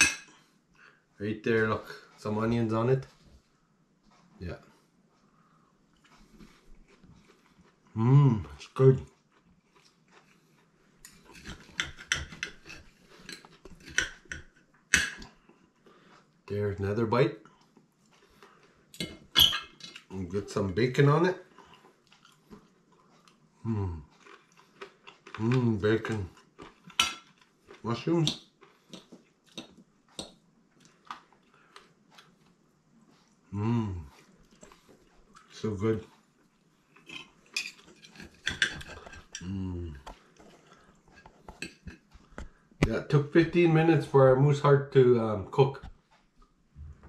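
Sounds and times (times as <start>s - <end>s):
knife and fork scraping a plate: 11.0s - 14.4s, 37.0s - 39.4s.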